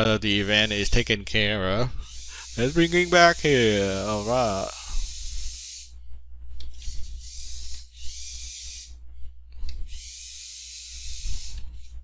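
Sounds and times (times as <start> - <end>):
steady high hiss: 2.2 - 5.5.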